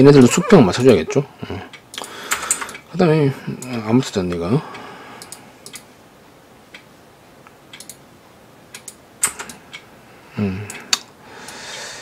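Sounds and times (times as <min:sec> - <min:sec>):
keyboard and mouse clicks: 0:01.8 - 0:02.8, 0:05.2 - 0:05.9, 0:07.7 - 0:08.0, 0:08.7 - 0:09.8
murmured voice: 0:10.3 - 0:10.8.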